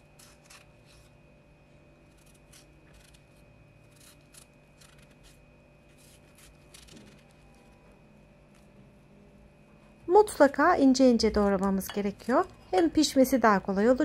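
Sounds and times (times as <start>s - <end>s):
knife slicing zucchini: 0.0s - 1.1s, 2.1s - 7.7s
faint steady hum: 0.0s - 14.0s.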